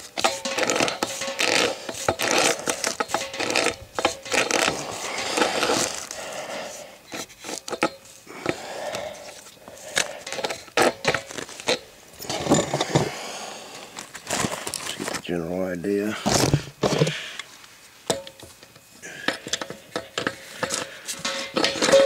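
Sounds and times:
pipe wrench clicking and scraping: 0.0s - 6.2s, 7.1s - 13.1s, 18.1s - 22.0s.

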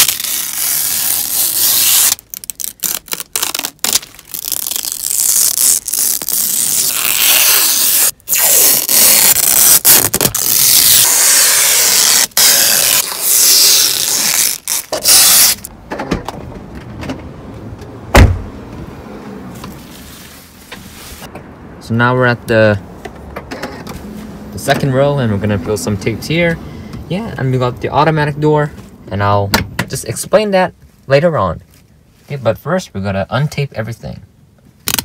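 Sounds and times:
plastic film peeling: 0.0s - 15.7s
loud thump: 18.1s - 18.5s.

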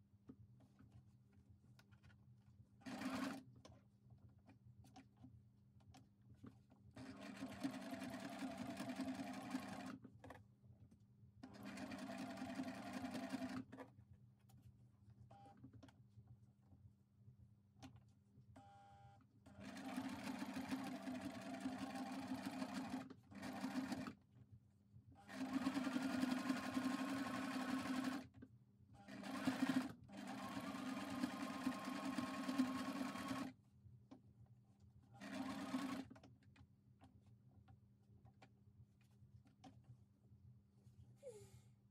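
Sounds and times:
sewing machine stitching: 2.8s - 3.4s, 7.0s - 10.4s, 11.4s - 13.8s, 19.6s - 24.2s, 25.3s - 28.3s, 29.1s - 33.5s, 35.2s - 36.2s.

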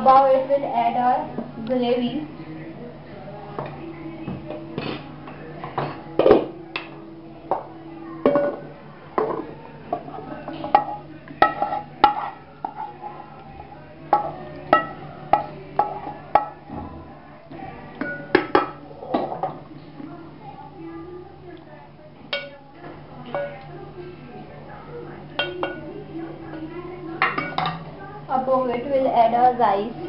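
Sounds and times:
spatula knocking metal pots: 10.6s - 12.9s, 14.1s - 16.6s, 25.4s - 25.9s.

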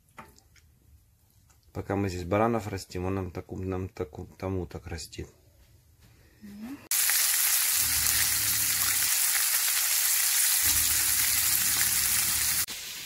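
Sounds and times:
meat sizzling in a frying pan: 6.9s - 13.0s.

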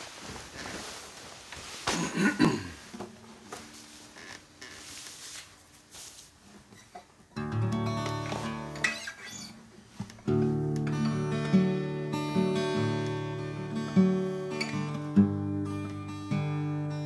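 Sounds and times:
guitar open strings ringing: 7.4s - 9.6s, 10.3s - 17.0s.

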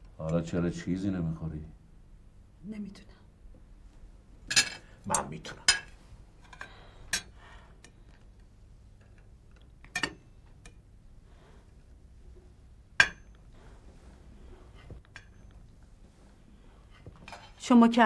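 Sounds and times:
faint low hum: 0.0s - 18.0s
cutlery clinking on plate: 9.9s - 10.2s.

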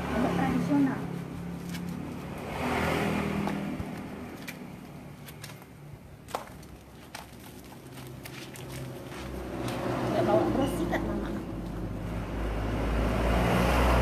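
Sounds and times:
hands scrubbing wet dog coat: 0.1s - 5.6s, 6.6s - 10.7s.

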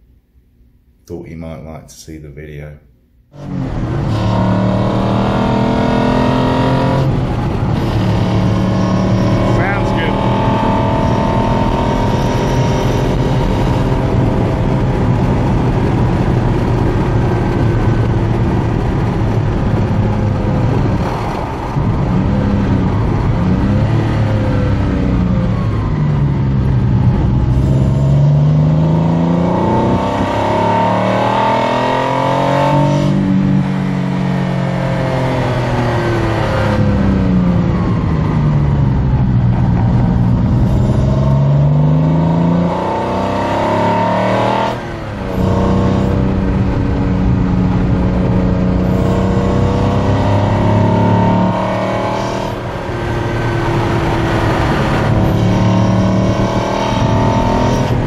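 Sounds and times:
car engine revving: 3.3s - 58.0s.

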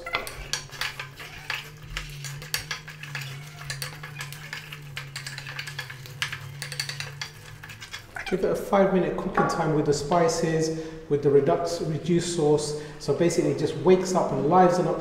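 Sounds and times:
spatula scraping a metal pot: 0.0s - 8.5s.

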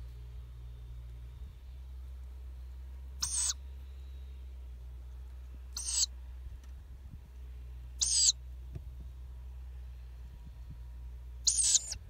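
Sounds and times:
owl chicks peeping: 3.2s - 3.6s, 5.7s - 6.1s, 7.9s - 8.4s, 11.4s - 12.0s.

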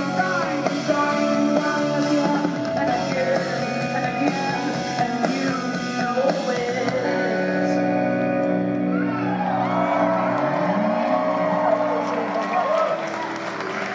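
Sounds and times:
woman singing: 0.0s - 8.4s
rock band playing: 0.0s - 13.9s.

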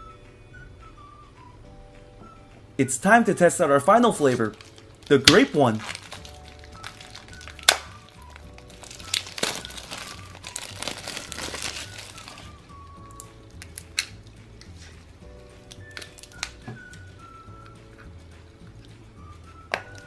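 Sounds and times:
background music: 0.0s - 20.0s
plastic wrapper crinkling: 4.2s - 14.2s, 15.7s - 16.6s.

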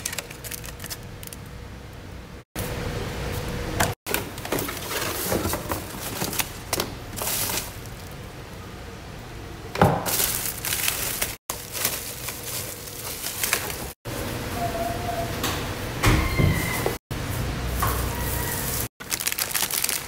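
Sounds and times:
bubble wrap crinkling: 0.0s - 1.4s, 10.1s - 14.0s, 18.3s - 20.0s.

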